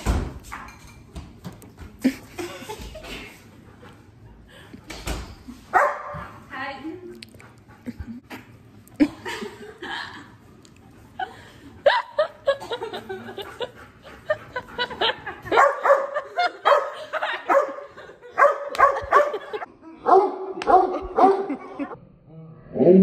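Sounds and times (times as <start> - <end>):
dog barking: 5.7 - 6.2, 15.5 - 17.8, 18.4 - 21.6.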